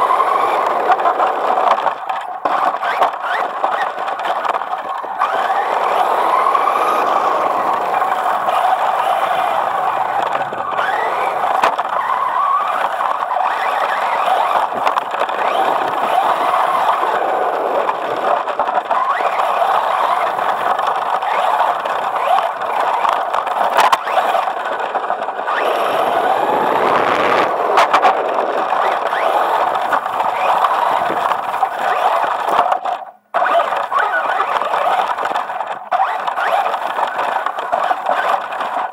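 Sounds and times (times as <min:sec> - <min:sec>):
electric motor and gears whining: 0:00.0 - 0:38.9
tyre rolling noise: 0:00.0 - 0:38.9.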